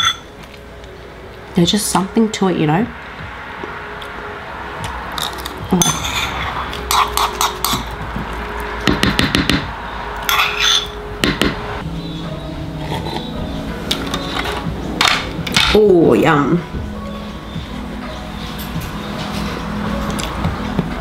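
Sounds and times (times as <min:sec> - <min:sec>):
metal spoon clinking on bowl: 0:00.0 - 0:00.3, 0:05.2 - 0:07.9, 0:10.3 - 0:11.0.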